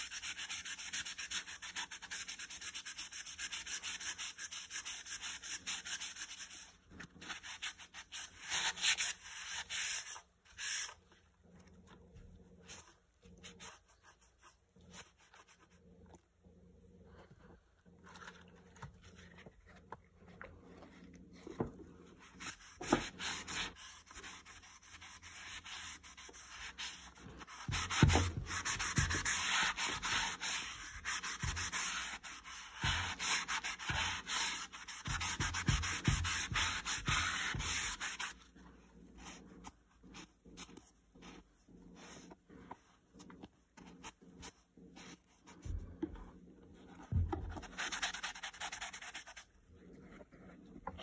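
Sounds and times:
eraser scrubbing rubber sole: 0.0 - 11.1, 22.1 - 38.5, 46.9 - 49.5.

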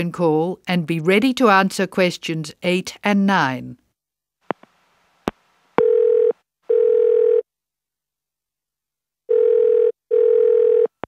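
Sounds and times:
telephone ringing tone: 5.8 - 7.4, 9.3 - 11.0.

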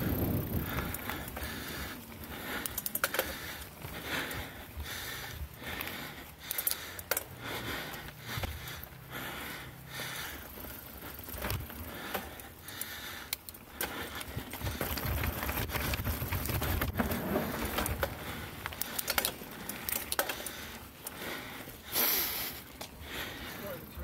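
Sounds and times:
bike chain and frame rattling: 0.0 - 24.0
bike tyres on dirt trail: 0.0 - 24.0.

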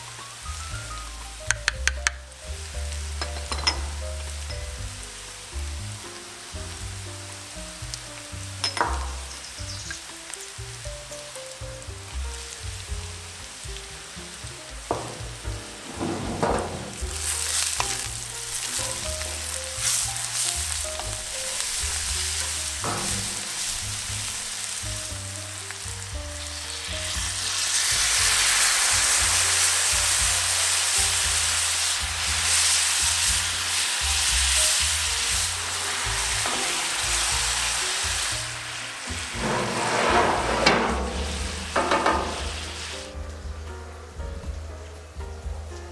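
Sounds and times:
onions sizzling in a skillet: 0.0 - 40.0, 40.7 - 43.6
vinegar poured into hot pan: 26.4 - 39.5.

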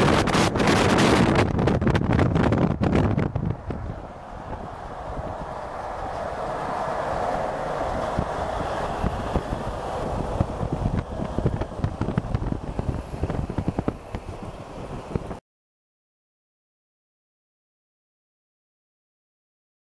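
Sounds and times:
tyres and engines on highway: 0.0 - 15.4
wind buffeting microphone: 0.0 - 15.4.

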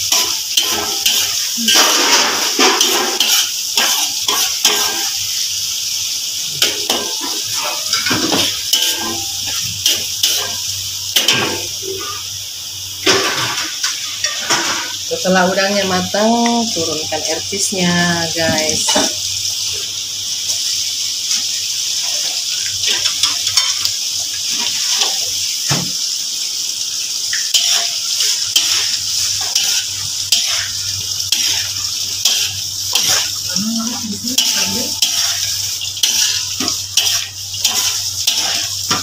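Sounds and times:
food sizzling in a wok: 0.0 - 39.0
spatula scraping a metal pan: 0.1 - 5.2, 6.6 - 10.6, 27.5 - 33.4, 34.2 - 39.0.

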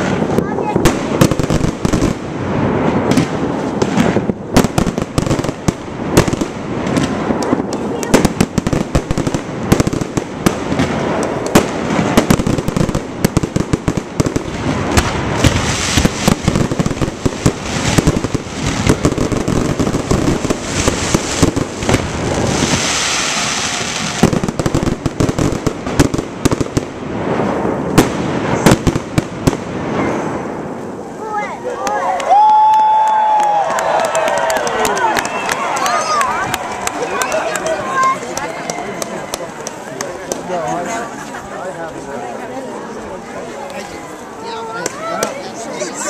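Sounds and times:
crackling hiss: 0.0 - 34.3
fireworks bursting: 0.0 - 46.0.

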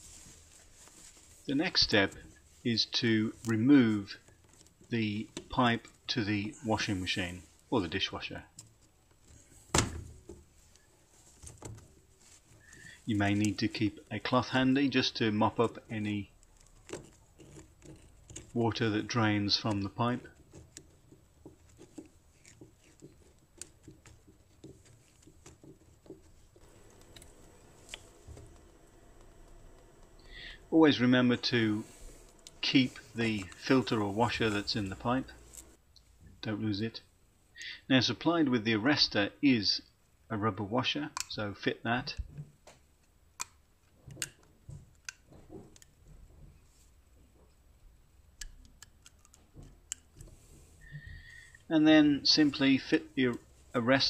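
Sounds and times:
cloth rubbing: 0.0 - 8.0, 10.4 - 35.8
plastic hose coupling clicking: 43.4 - 46.0.

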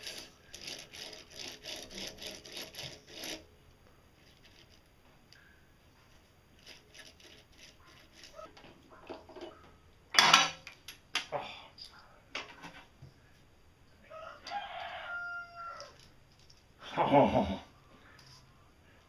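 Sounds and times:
lathe chuck and gears rattling: 0.0 - 3.5, 4.2 - 4.9, 6.5 - 9.6.

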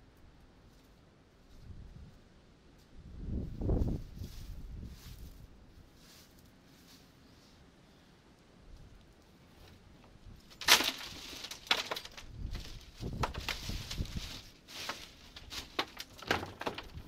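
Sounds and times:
plastic pieces clattering into bin: 10.6 - 14.2.

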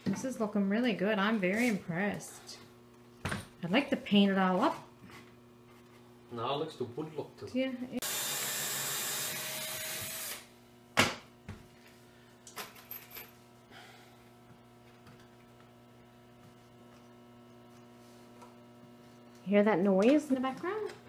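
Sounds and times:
oven electrical hum: 0.0 - 8.0, 9.9 - 21.0
cordless drill driving a screw: 8.0 - 10.5.

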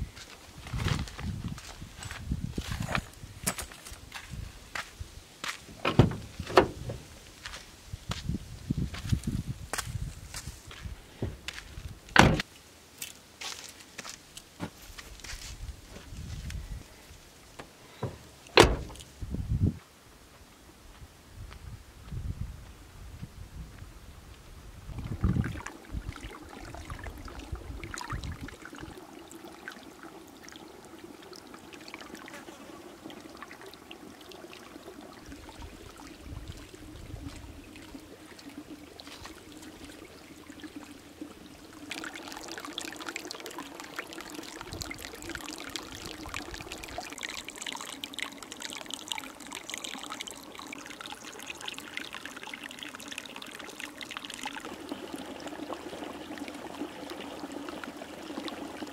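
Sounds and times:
water pouring into a pool: 24.8 - 58.9.

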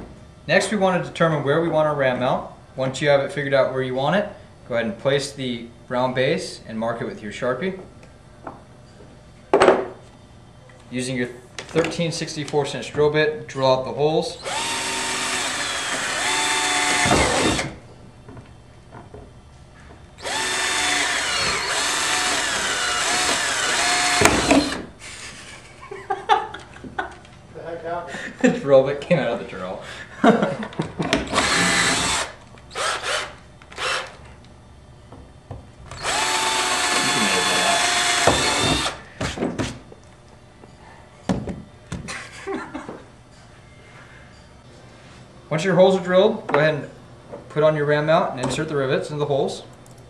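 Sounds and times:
drill boring through plastic: 14.4 - 17.8, 20.2 - 25.2, 31.3 - 34.2, 35.9 - 39.0.

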